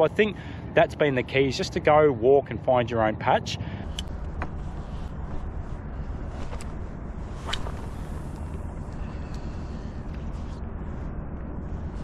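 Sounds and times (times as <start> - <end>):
low outdoor rumble: 0.0 - 12.0.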